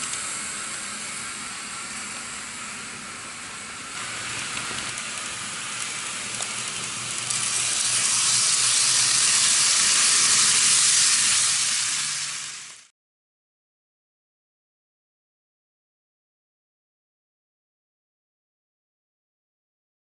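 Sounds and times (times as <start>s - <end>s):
model trains whirring: 0.0s - 12.9s.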